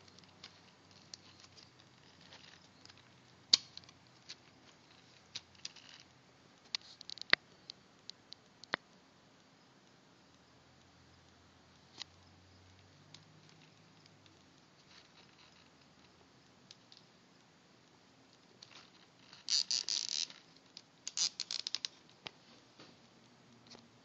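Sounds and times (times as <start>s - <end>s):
zip tie ratchet clicking: 19.3s - 20.4s, 21.0s - 21.9s.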